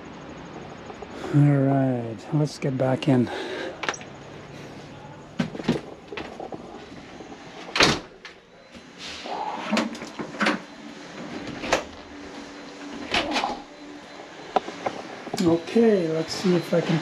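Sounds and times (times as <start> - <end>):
wooden door closing: 7.7 - 8.3.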